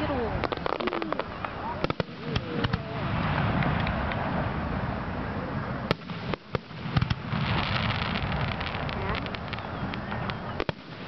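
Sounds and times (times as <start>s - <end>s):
crackling firework shells: 0.0s - 4.6s, 5.9s - 11.0s
firework pops: 0.4s - 2.8s, 3.4s - 4.3s, 5.9s - 11.0s
firework bang: 0.4s - 4.8s, 5.8s - 11.0s.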